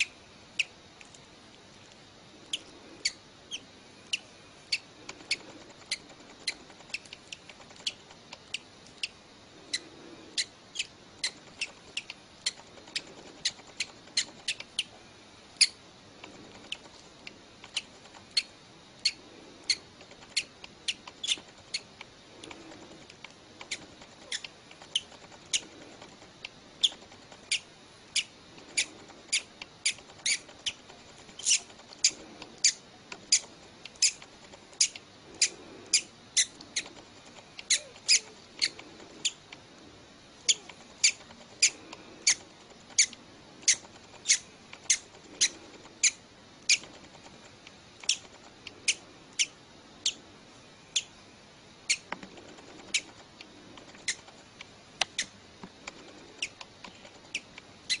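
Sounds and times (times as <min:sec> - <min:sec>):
hatchling bird peeping: 0:02.4 - 0:15.0, 0:17.6 - 0:21.9, 0:26.4 - 0:36.9, 0:37.6 - 0:39.4, 0:40.4 - 0:46.9, 0:48.0 - 0:50.2, 0:50.9 - 0:51.1, 0:51.8 - 0:52.1, 0:57.3 - 0:58.0.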